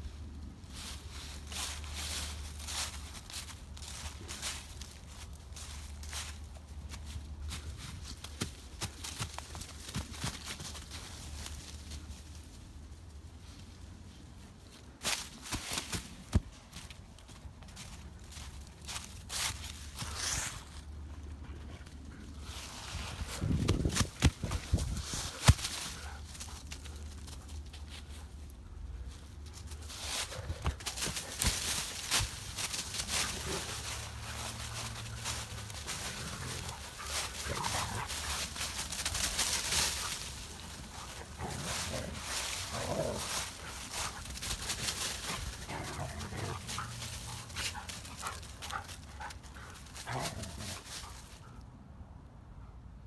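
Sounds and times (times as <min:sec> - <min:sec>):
dog paws crunching dry leaves: 0:00.6 - 0:12.7, 0:15.0 - 0:21.0, 0:22.3 - 0:28.4, 0:29.0 - 0:51.5.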